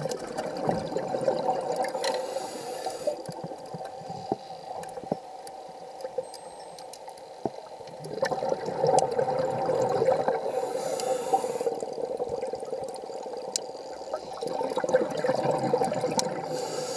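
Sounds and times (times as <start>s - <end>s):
bubbles gurgling underwater: 0.0s - 2.0s, 7.9s - 10.5s, 11.7s - 16.4s
regulator hiss: 2.0s - 3.2s, 10.4s - 11.8s, 16.4s - 16.9s.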